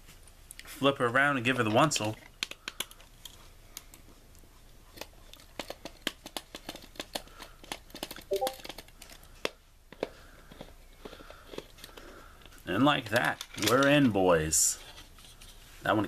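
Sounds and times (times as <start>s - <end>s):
brief pitched sound: 8.3s - 8.6s.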